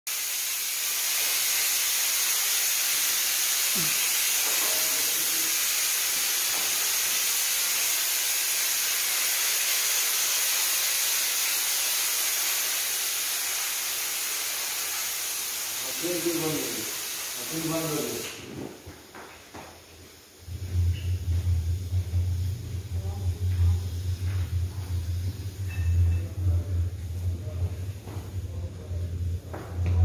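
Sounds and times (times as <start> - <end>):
sprayer misting with high hiss: 0.1 - 18.6.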